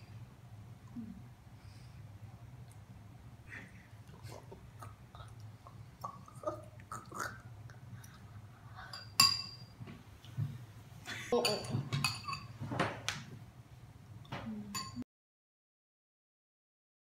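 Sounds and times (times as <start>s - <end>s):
spoons clinking against bowls: 8.9s - 9.8s, 11.4s - 12.6s, 14.7s - 15.0s.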